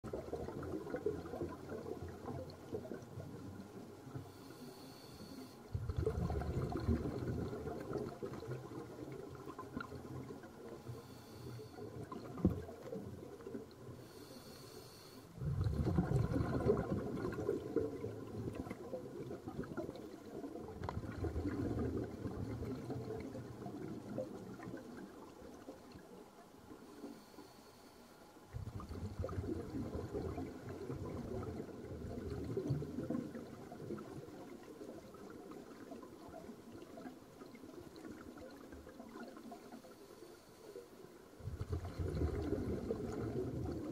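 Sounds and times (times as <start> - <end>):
exhaled air bubbling: 0.0 - 4.7, 5.5 - 14.6, 15.3 - 27.3, 28.4 - 43.9
underwater crackle: 0.0 - 43.9
regulator inhalation hiss: 4.3 - 5.6, 14.0 - 15.3.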